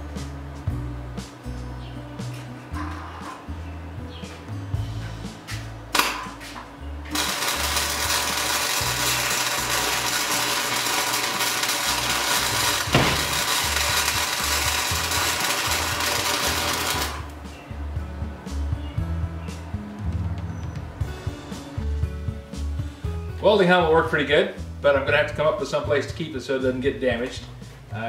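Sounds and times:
welder arc crackling: 7.0s - 17.4s.

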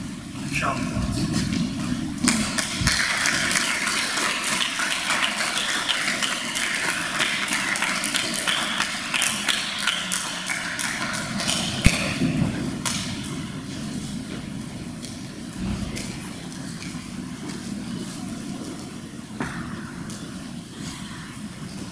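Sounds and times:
audience applauding: 1.3s - 18.5s.

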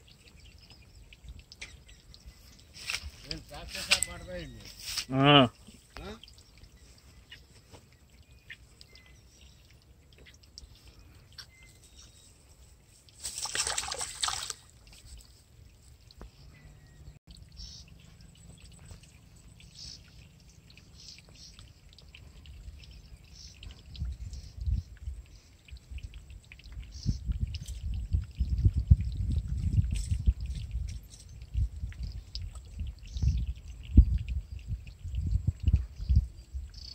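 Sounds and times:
fish splashing water: 13.1s - 15.8s.

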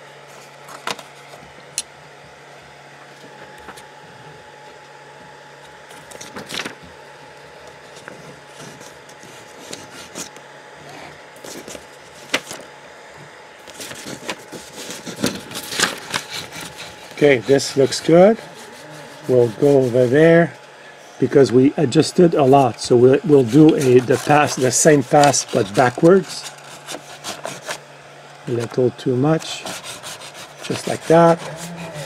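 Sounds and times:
faint machine hum: 0.0s - 32.0s
paper rustling: 5.9s - 6.8s, 11.4s - 12.7s, 13.6s - 20.0s, 22.4s - 27.8s.

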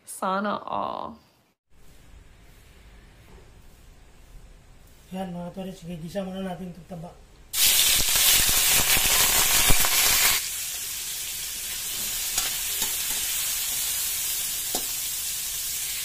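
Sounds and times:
pork fat sizzling in a wok: 7.5s - 16.0s
spatula scraping and tapping pan: 14.7s - 15.0s.

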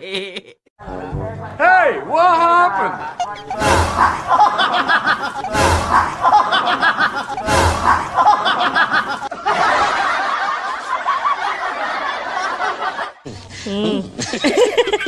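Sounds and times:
crowd laughing: 3.0s - 15.0s
booming hits: 3.5s - 4.5s, 5.4s - 6.4s, 7.3s - 8.3s.

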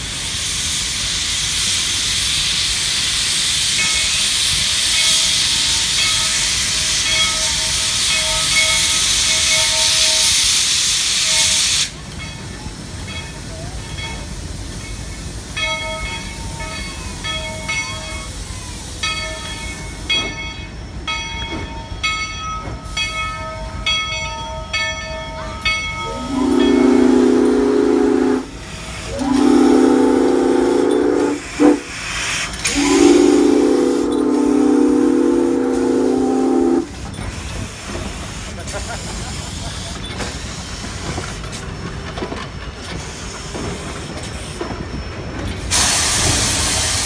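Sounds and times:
steam hissing: 0.0s - 21.2s, 22.7s - 23.8s, 25.9s - 47.0s
steam whistle blasts: 26.0s - 37.0s.

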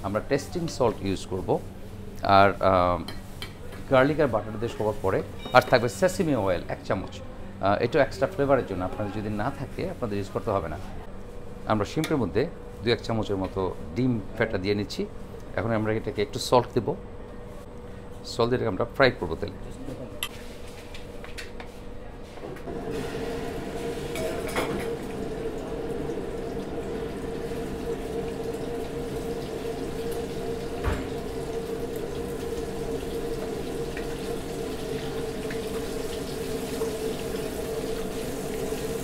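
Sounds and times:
shrimp sizzling in oil: 22.9s - 39.0s.

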